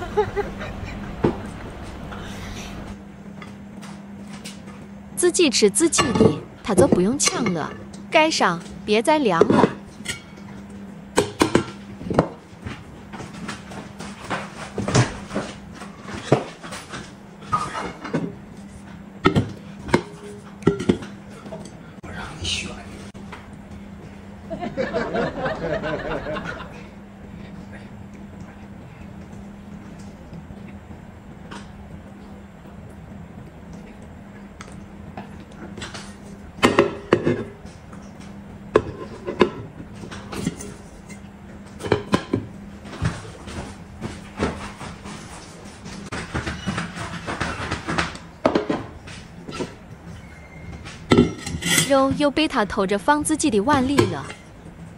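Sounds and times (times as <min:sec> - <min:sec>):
low steady hum: 0:00.0 - 0:46.1
tableware knocks and thumps: 0:05.9 - 0:07.6
metal covers clattering on dishes: 0:50.9 - 0:52.0.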